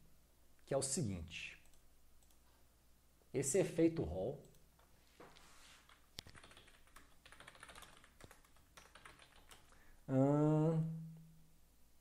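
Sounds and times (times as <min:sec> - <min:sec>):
person speaking: 0:00.6 - 0:01.7, 0:03.3 - 0:04.6, 0:10.0 - 0:11.2
computer keyboard typing: 0:05.8 - 0:09.8.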